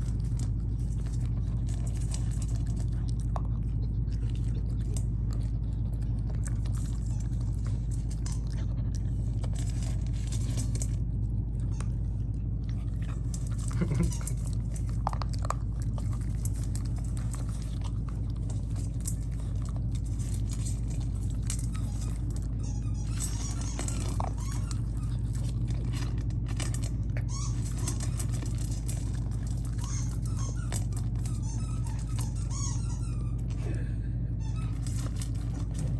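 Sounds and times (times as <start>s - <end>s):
puppy crunching dry kibble: 0.0s - 33.6s, 34.2s - 35.9s
steady low hum: 0.0s - 35.9s.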